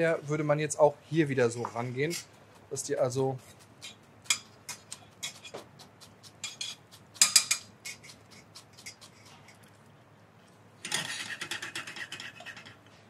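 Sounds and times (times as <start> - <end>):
knife scraping on board: 1.6 - 9.7, 10.8 - 13.0.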